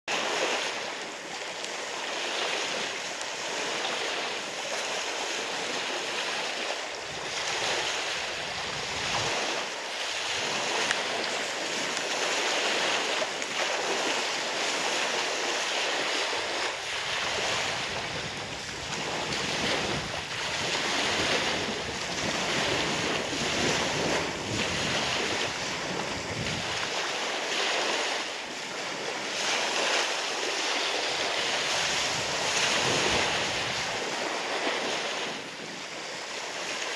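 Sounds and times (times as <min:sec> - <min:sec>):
small waves breaking on beach: 0:00.1 - 0:36.9
wind on microphone: 0:00.1 - 0:36.9.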